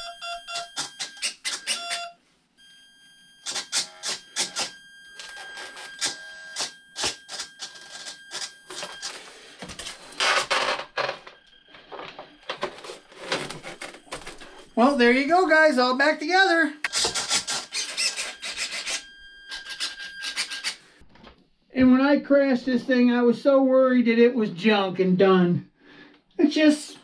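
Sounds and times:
steady high whine: 0:02.9 - 0:22.9
servos buzzing and whirring: 0:03.4 - 0:14.8, 0:16.8 - 0:21.0
foam and plastic rubbing: 0:11.8 - 0:14.9.

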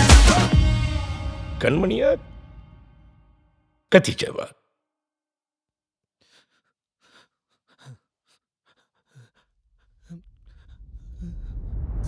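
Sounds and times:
music: 0:00.0 - 0:03.7.

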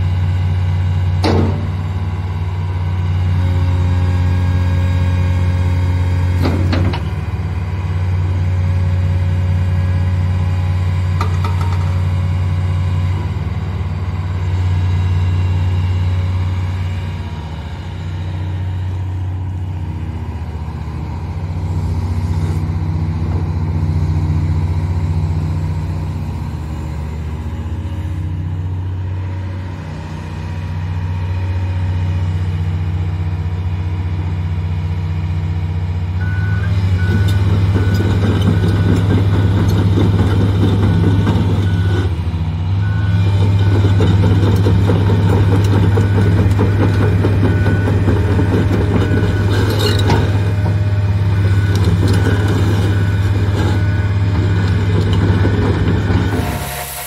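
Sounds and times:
excavator diesel engine running: 0:00.0 - 0:57.0
travel alarm beeping: 0:51.2 - 0:53.9.

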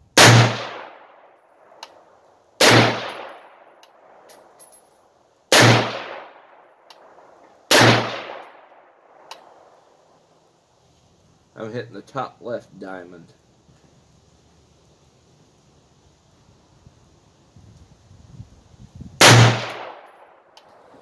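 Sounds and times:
rifle shots: 0:00.2 - 0:01.2, 0:02.6 - 0:03.6, 0:05.5 - 0:06.5, 0:07.7 - 0:08.8, 0:19.2 - 0:20.3.

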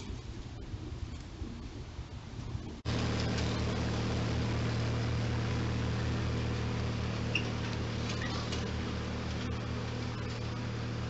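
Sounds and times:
lawn tractor engine running: 0:02.9 - 0:11.0.

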